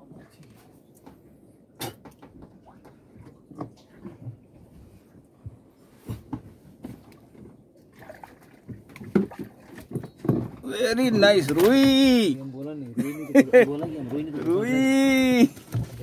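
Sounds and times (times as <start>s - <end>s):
knocks and taps on a boat: 1.8s - 7.6s, 8.6s - 10.7s.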